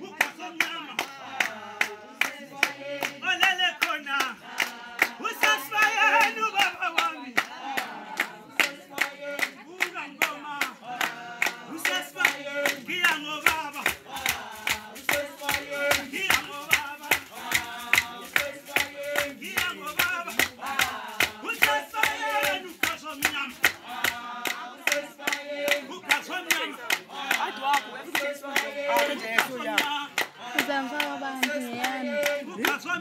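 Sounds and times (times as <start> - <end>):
group singing: 0.0 - 33.0
quick hand clapping: 0.2 - 33.0.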